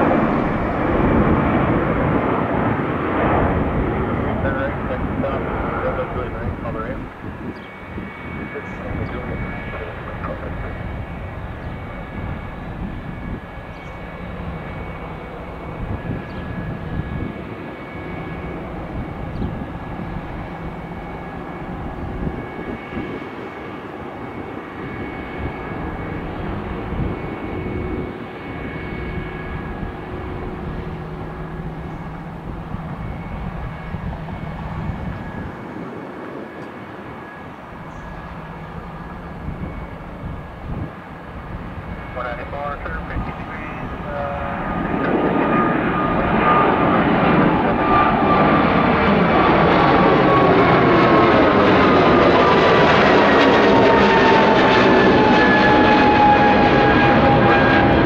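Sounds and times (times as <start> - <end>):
jet engines whining: 0.0 - 58.0.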